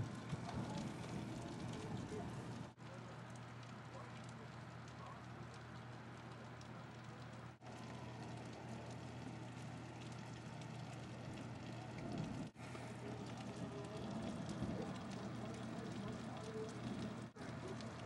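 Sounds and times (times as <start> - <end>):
low steady hum: 0.0 - 18.0
steady rain falling: 0.0 - 18.0.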